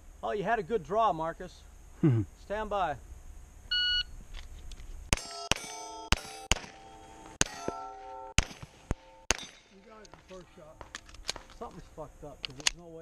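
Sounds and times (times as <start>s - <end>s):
pistol shots: 5.1s - 9.8s
steel target clanging: 5.1s - 11.5s.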